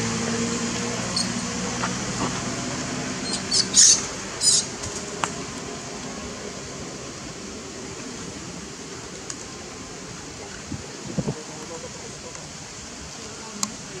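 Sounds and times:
monkey squeaking: 1.1s - 1.5s, 3.2s - 4.7s.

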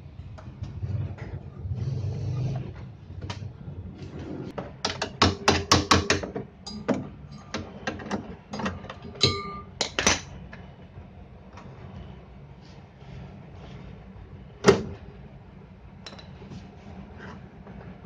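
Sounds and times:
tools knocking on metal: 4.8s - 7.6s
ringing metallic clink: 9.2s - 9.8s.

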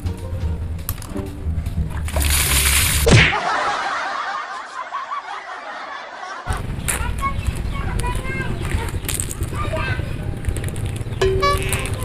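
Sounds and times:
water poured and splashing: 2.0s - 3.3s
music with bass beat: 11.2s - 12.0s.

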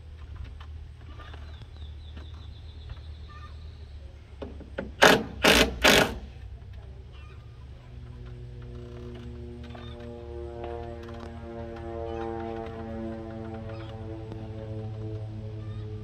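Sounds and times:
power driver driving screw into metal: 5.0s - 6.3s.

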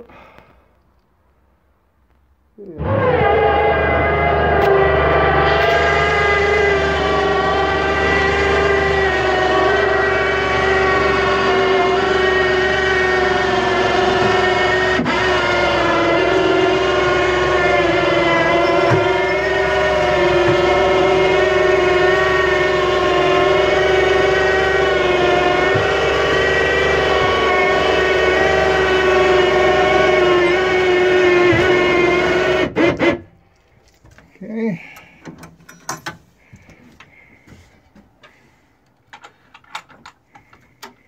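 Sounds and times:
elevator motor whining: 2.7s - 33.3s.

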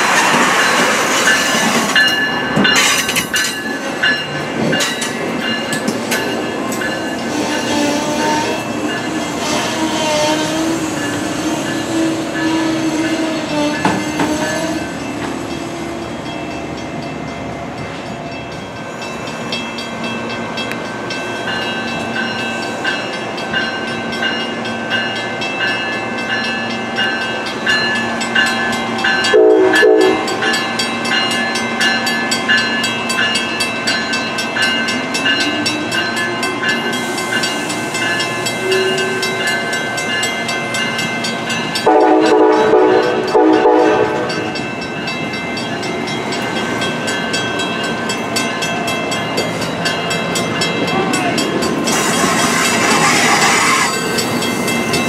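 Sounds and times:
train wheels clattering over rails: 0.0s - 15.8s, 27.6s - 55.0s
train horn blasts: 29.3s - 30.4s, 41.8s - 44.5s.

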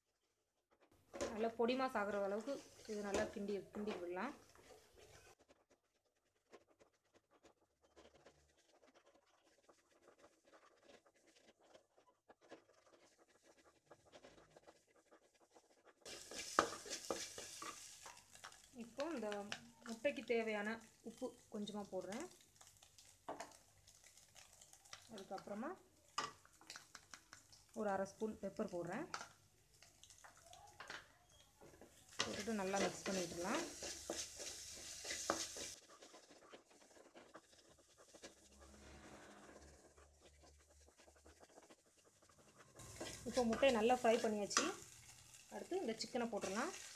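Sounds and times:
frying sizzle: 1.0s - 5.6s, 6.2s - 46.9s
spatula scraping metal pan: 6.4s - 18.5s, 31.3s - 46.9s.

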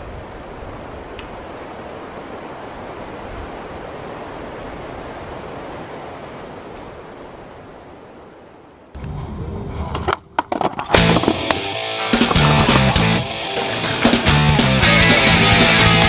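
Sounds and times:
punk rock with distorted guitars: 11.0s - 16.0s.

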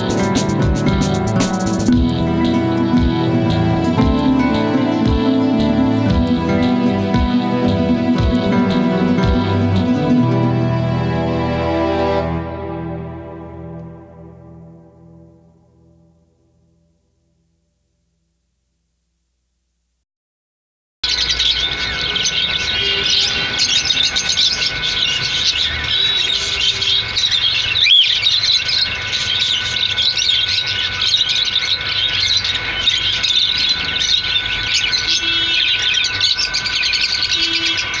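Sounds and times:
parrots chirping and chattering: 21.1s - 38.0s.

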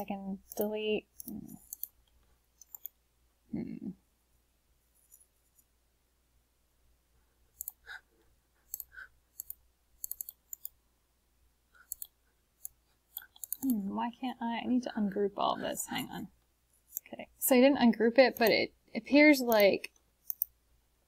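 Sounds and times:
computer mouse clicking: 0.4s - 2.0s, 2.6s - 3.0s, 7.5s - 7.9s, 8.7s - 10.8s, 11.8s - 13.8s, 18.3s - 18.6s, 19.4s - 20.6s.

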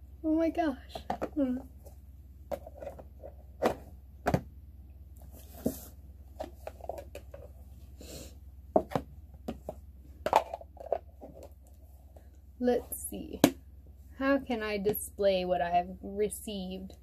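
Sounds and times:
plastic boxes clicking and knocking: 6.4s - 7.6s, 8.8s - 11.6s.

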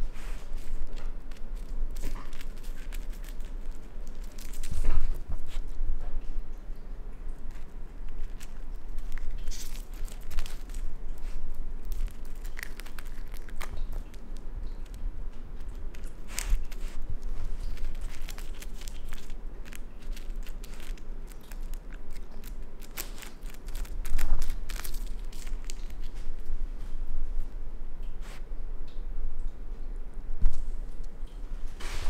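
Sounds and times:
animal chewing crunchily: 0.0s - 5.9s, 7.2s - 26.5s.

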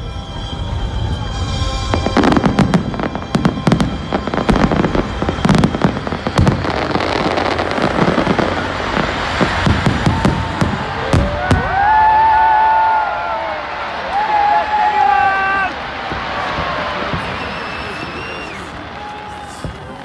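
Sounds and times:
fireworks crackling hiss: 0.6s - 20.0s
fireworks bursts and bangs: 1.8s - 20.0s.

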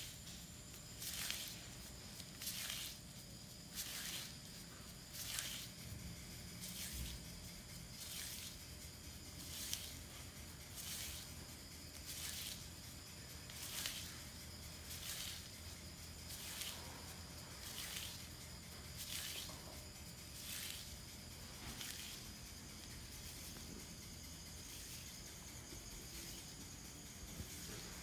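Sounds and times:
leaf rubbing against skin: 0.0s - 28.0s.

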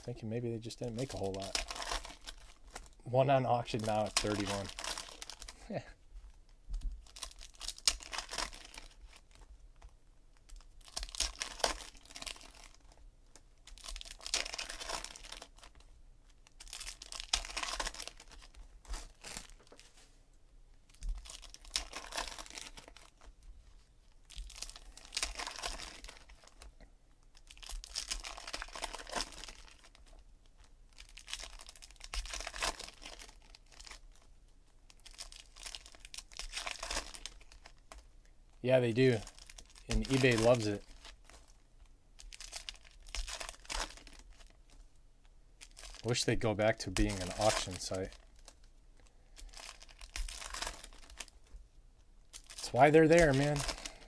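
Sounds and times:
foil wrappers crinkling and tearing: 0.0s - 5.9s, 7.0s - 20.0s, 20.9s - 44.9s, 45.6s - 54.0s.

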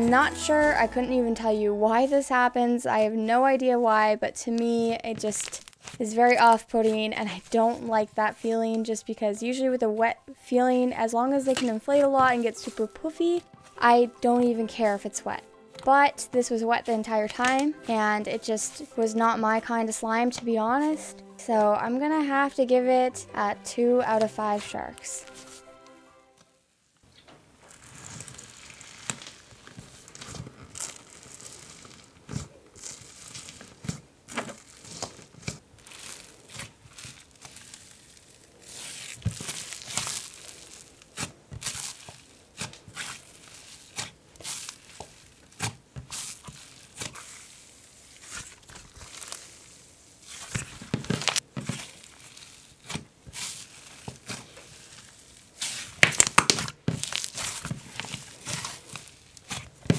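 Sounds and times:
wet slime clicks and crackles: 27.6s - 47.3s, 50.3s - 54.5s, 55.6s - 59.8s
slime popping when squeezed: 55.6s - 59.7s.

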